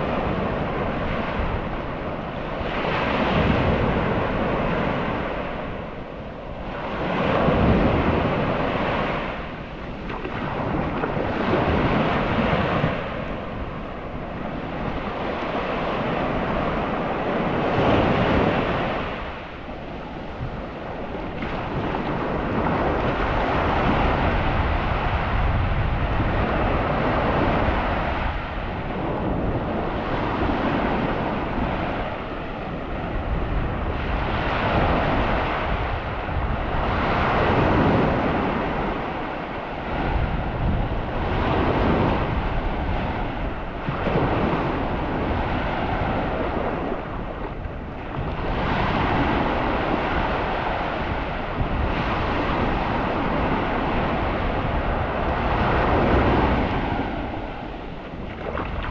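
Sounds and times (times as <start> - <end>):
surf washing onto beach: 0.0 - 58.9
wind buffeting microphone: 0.0 - 58.9.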